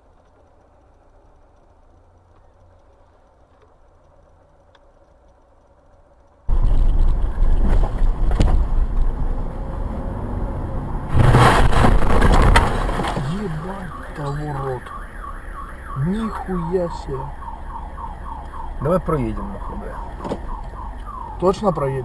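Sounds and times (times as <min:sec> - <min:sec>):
car engine and road noise: 0:00.0 - 0:22.0
road rumble: 0:00.0 - 0:22.0
explosion blast: 0:11.1 - 0:13.6.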